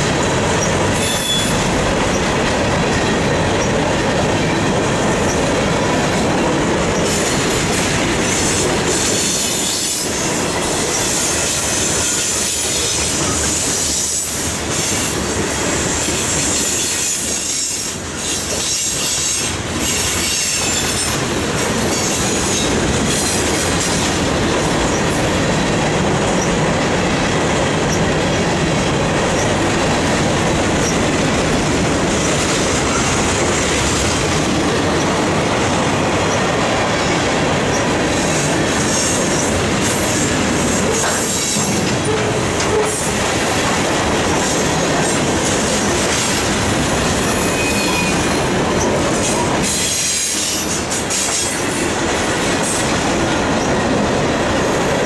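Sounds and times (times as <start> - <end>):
train wheels rumbling and clattering: 0.0 - 55.0
high wheel squeal: 0.6 - 2.3, 47.2 - 50.8.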